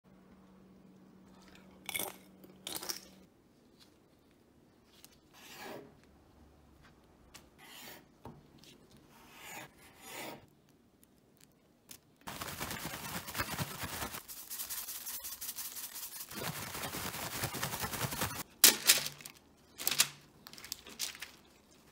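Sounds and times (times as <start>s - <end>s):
plastic bag crinkling and rustling: 12.2s - 21.9s.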